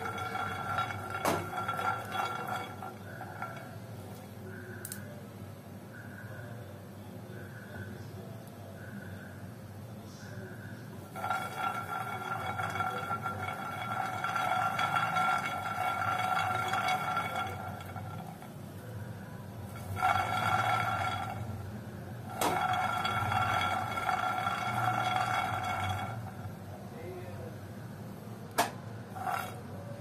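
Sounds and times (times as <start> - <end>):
pan scraping on stove grate: 0.0 - 4.2, 11.0 - 26.6, 29.1 - 30.0.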